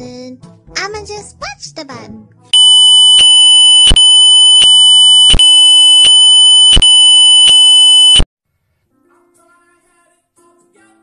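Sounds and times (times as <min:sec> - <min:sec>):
shrill electronic alarm tone: 0:02.6 - 0:08.3.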